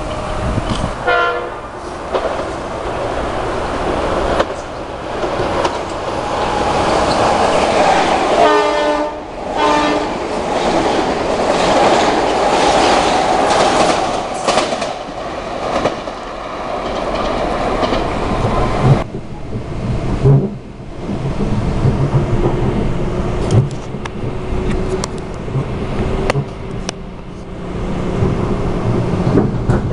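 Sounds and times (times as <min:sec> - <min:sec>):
train passing with rushing roar: 0:00.0 - 0:29.9
train horn blasts: 0:01.0 - 0:01.7, 0:08.4 - 0:10.2
wheels clattering over rail joints: 0:03.8 - 0:08.9, 0:09.7 - 0:27.1.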